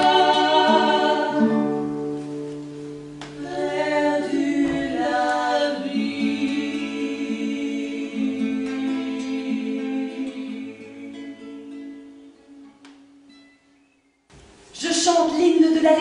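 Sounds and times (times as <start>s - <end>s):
voices singing in harmony: 0.0s - 2.2s, 3.3s - 12.0s.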